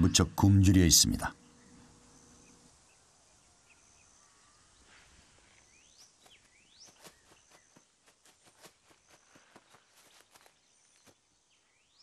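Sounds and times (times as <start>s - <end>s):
bird chirps: 1.0s - 12.0s
soft steps in grass: 4.9s - 11.3s.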